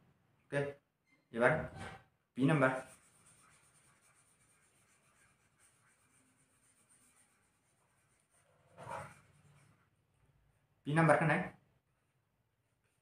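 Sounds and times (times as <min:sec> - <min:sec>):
pen scratching on paper: 0:02.7 - 0:09.8.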